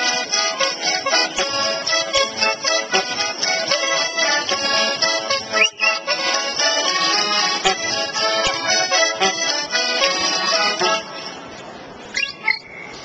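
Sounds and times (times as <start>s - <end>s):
accordion playing chords: 0.0s - 13.0s
bird-like chirps: 12.1s - 13.0s.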